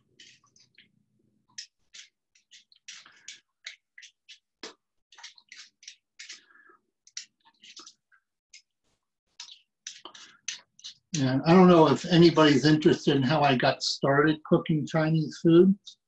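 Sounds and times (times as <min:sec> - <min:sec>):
peeler scraping ginger: 0:01.6 - 0:06.5.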